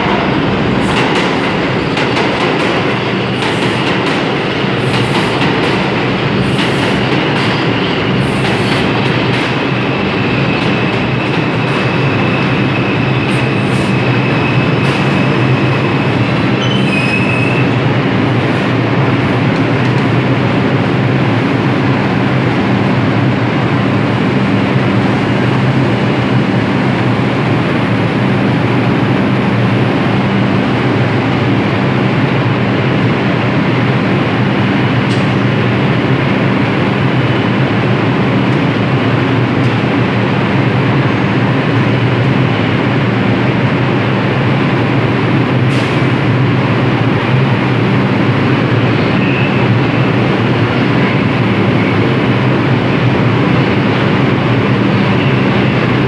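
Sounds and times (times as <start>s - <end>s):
subway train rumbling: 0.0s - 56.0s
short high squeal: 16.6s - 17.8s.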